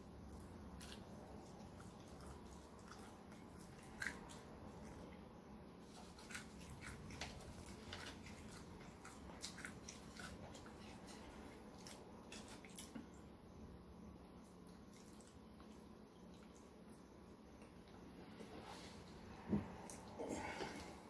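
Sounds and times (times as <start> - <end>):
chicken being chewed: 0.2 - 5.1, 5.8 - 13.1, 14.4 - 17.0.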